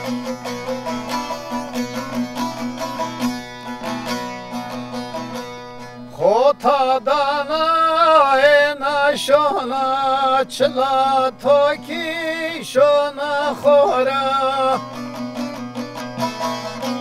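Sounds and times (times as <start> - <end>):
long-necked lute strummed: 0.0 - 17.0
man singing: 6.1 - 15.0.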